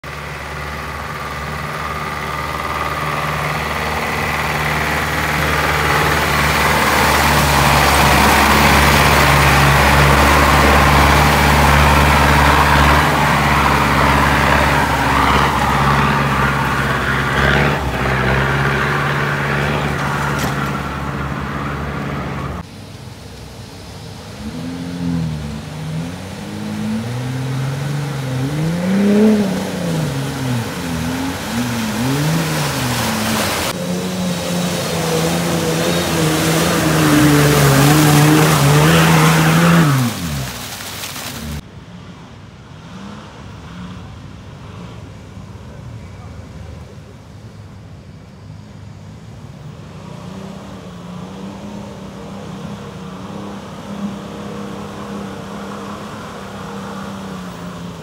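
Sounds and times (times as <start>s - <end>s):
pickup engine revving: 0.0s - 22.7s, 24.3s - 41.6s
truck engine labouring in mud: 0.0s - 58.0s.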